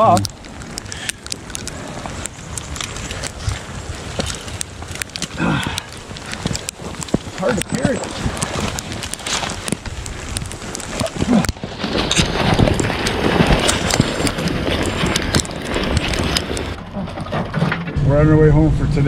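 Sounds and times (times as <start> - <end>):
footsteps crunching through snow: 1.7 - 16.8.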